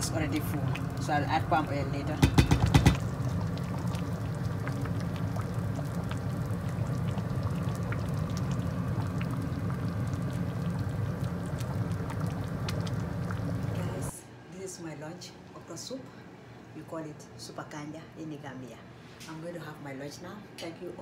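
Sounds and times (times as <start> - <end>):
thick soup bubbling in a pot: 0.0 - 14.1.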